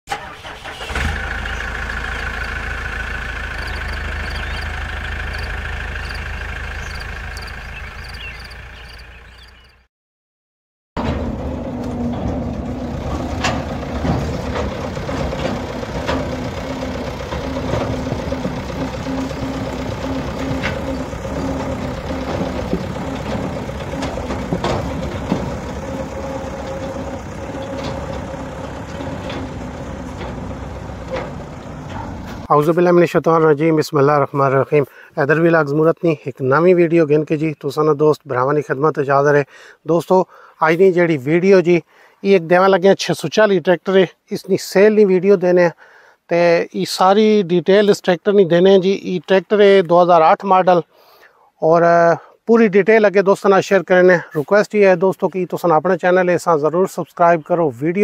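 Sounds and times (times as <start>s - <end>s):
tractor engine running: 0.1s - 9.8s, 11.0s - 32.8s.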